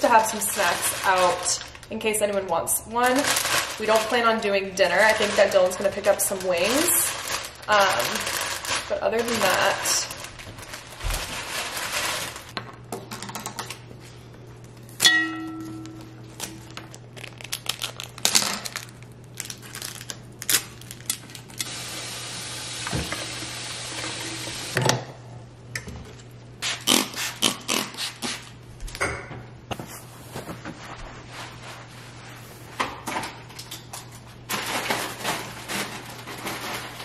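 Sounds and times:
glass clink with ringing tone: 15.0 - 16.2
tap water running: 21.6 - 24.8.

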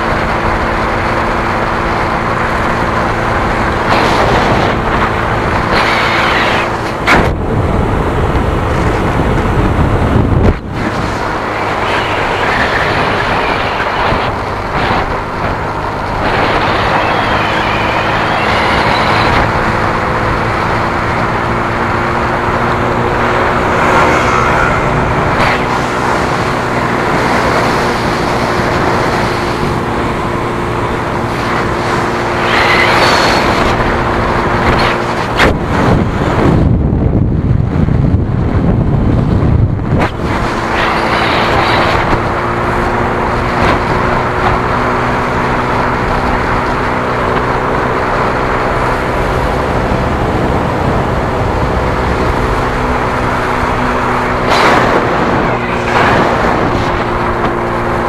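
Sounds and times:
motorcycle engine running: 0.0 - 35.7
wind and road noise: 0.0 - 58.0.

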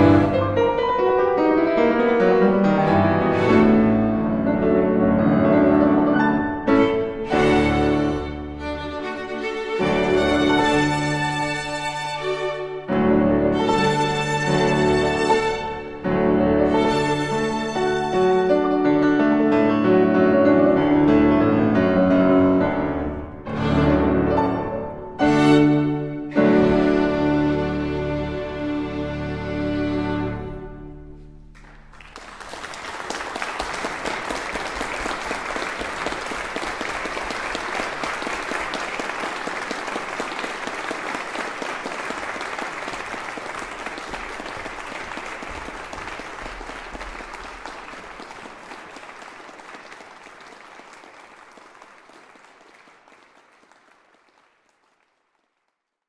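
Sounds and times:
piano and string ensemble chord: 0.0 - 31.8
audience applause: 7.3 - 12.7, 31.6 - 55.9.

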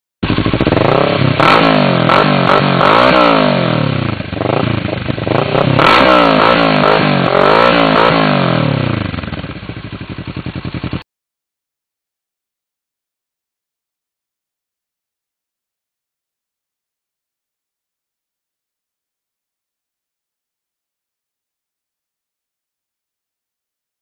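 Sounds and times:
motorcycle engine revving: 0.2 - 11.0.

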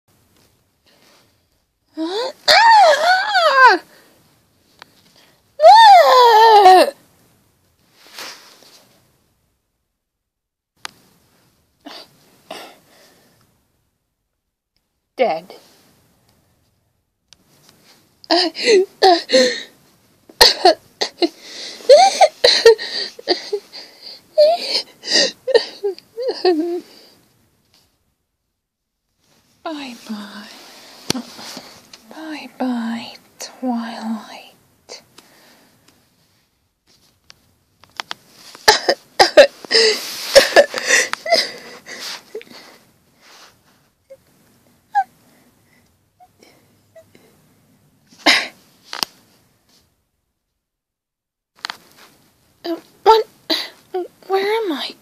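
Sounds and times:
child sobbing and wheezing: 1.9 - 4.0, 5.6 - 7.0, 18.3 - 19.8, 20.4 - 27.1, 38.6 - 42.8.

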